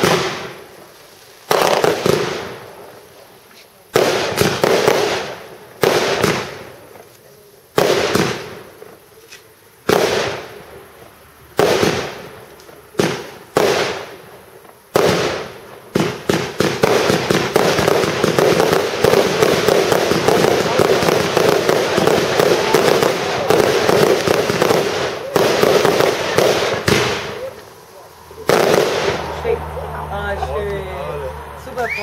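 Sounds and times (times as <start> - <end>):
aerial fireworks bursting: 0.0 - 32.0.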